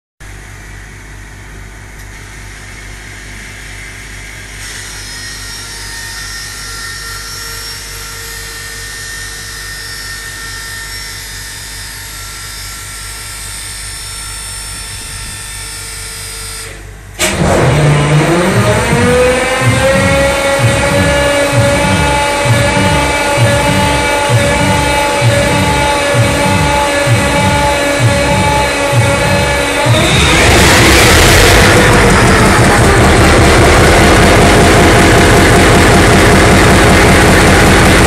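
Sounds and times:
machinery humming and whining: 0:00.2 - 0:38.0
diesel locomotive engine starting: 0:16.6 - 0:38.0.

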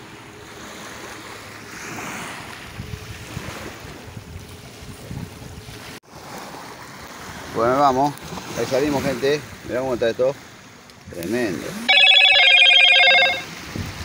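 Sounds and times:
wind buffeting microphone: 0:02.7 - 0:05.8.

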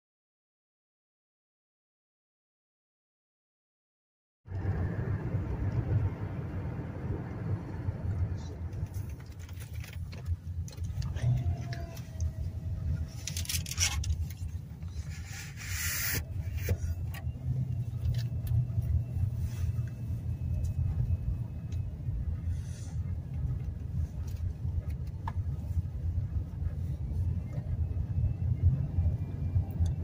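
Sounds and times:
car engine and road rumble: 0:04.5 - 0:30.0.

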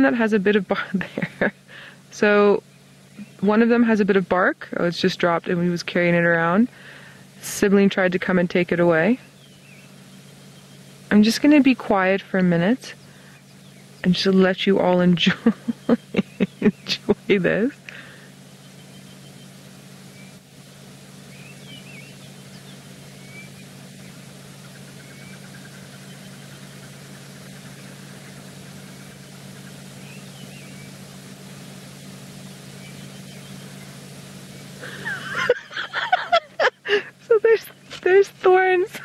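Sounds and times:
steady low hum: 0:00.0 - 0:39.0
faint bird chirps: 0:09.2 - 0:11.1, 0:15.6 - 0:17.0, 0:18.0 - 0:31.4, 0:32.4 - 0:35.4.

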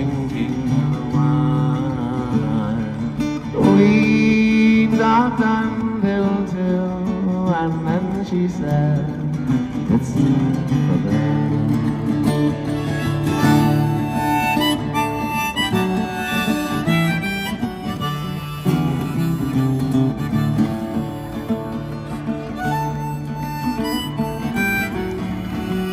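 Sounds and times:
acoustic guitar strumming: 0:00.0 - 0:25.9
harmonica melody: 0:12.0 - 0:25.9.

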